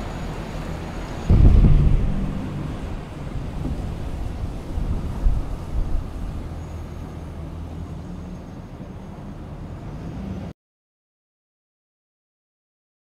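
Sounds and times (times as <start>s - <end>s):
traffic rumble: 0.0s - 10.5s
faint hum: 1.2s - 7.0s
loud knocks: 1.3s - 5.4s.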